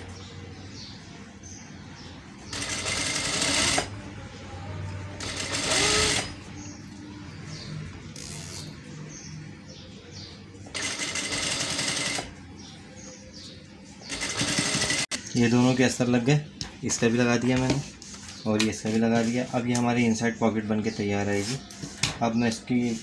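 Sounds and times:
sewing machine stitching: 2.5s - 3.9s, 5.2s - 6.3s, 10.7s - 12.3s, 14.1s - 15.2s.

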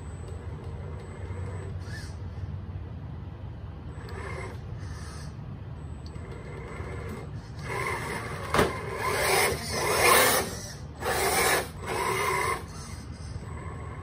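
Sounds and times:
rc car motor whirring and grinding: 3.9s - 5.1s, 6.1s - 14.0s.

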